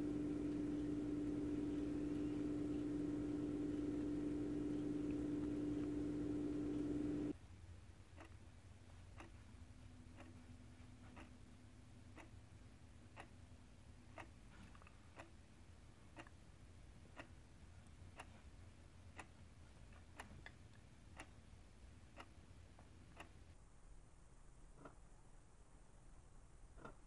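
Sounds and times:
wall clock ticking: 0:00.0 - 0:07.4, 0:08.0 - 0:23.6
low hiss: 0:00.0 - 0:12.6.

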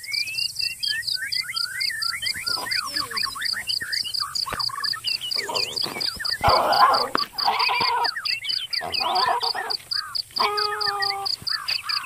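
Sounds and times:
rapid pulsing call: 0:01.2 - 0:12.0
harsh animal calls: 0:02.4 - 0:03.7, 0:04.5 - 0:12.0.

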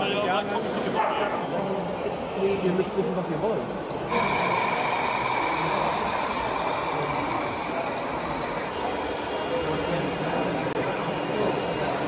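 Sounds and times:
model truck motor whine: 0:04.1 - 0:09.5.

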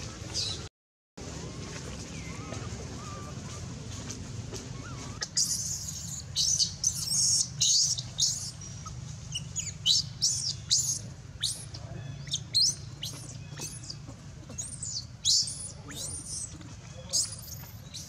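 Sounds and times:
baby monkey screaming: 0:04.8 - 0:18.0.

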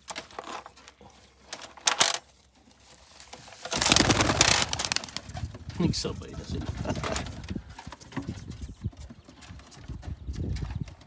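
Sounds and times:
pigeon wings flapping: 0:03.3 - 0:05.6.

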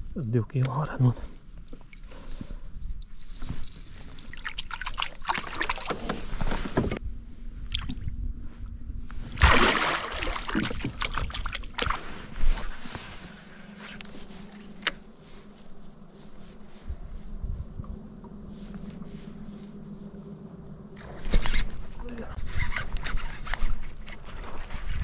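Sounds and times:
water splashing beside boat: 0:01.6 - 0:07.0, 0:09.1 - 0:14.9.

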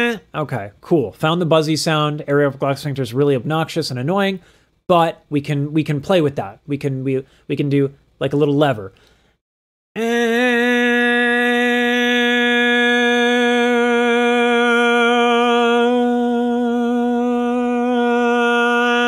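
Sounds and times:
man holding buzzy vocal tone: 0:10.0 - 0:19.0.

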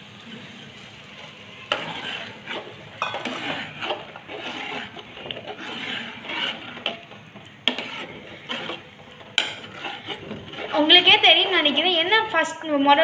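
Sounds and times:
ladle scraping metal pot: 0:01.6 - 0:12.3.

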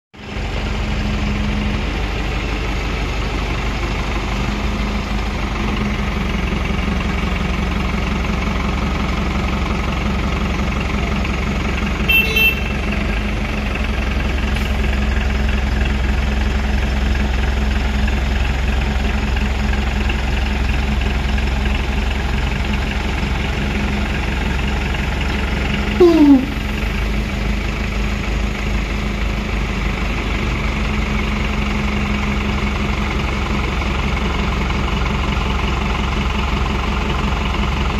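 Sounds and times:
diesel engine humming: 0:00.2 - 0:37.9.

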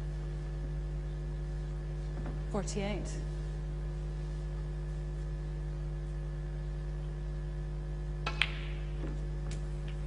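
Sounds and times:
electrical hum: 0:00.0 - 0:10.0
snooker balls clicking: 0:08.2 - 0:10.0.

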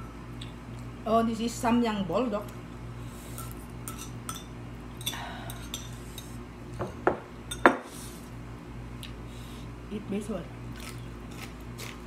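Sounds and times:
utensils clinking on ceramic bowls: 0:03.4 - 0:07.8.

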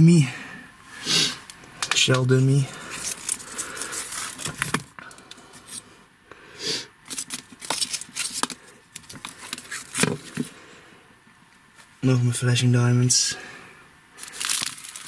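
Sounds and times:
packaging clicks taps and rustles: 0:07.1 - 0:10.5, 0:14.2 - 0:15.0.

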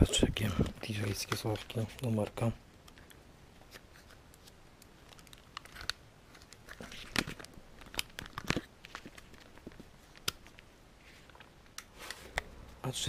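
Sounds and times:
plastic bags crinkling: 0:03.0 - 0:11.5.

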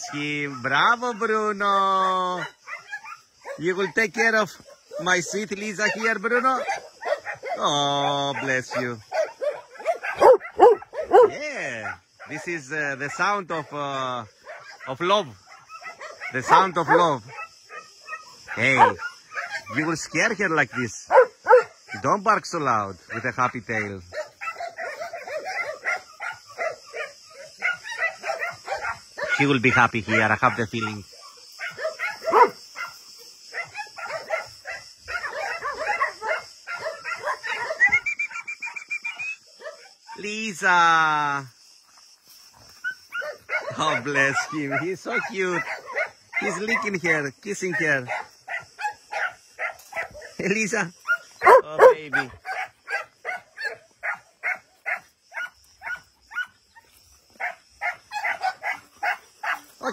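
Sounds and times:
dog barking: 0:01.9 - 0:12.4, 0:13.1 - 0:19.9, 0:20.7 - 0:22.1, 0:23.1 - 0:40.3, 0:42.8 - 0:47.0, 0:47.6 - 0:59.9
dog yipping and whining: 0:09.7 - 0:11.3.

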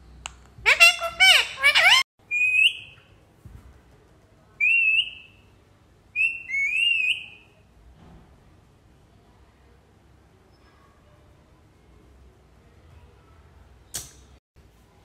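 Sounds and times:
parakeet warbling call: 0:00.6 - 0:03.0
parakeet whistles: 0:06.2 - 0:07.5.

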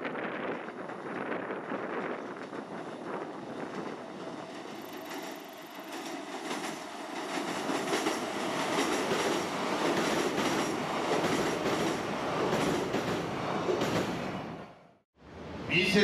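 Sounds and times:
train wheels rumbling on rails: 0:00.0 - 0:14.6
clacking over rail joints: 0:03.6 - 0:13.2.

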